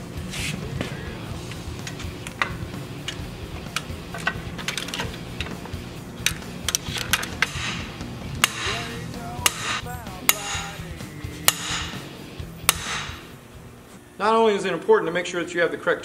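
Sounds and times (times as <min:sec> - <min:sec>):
metallic knocks on a tool: 0:08.4 - 0:08.8, 0:09.5 - 0:10.7.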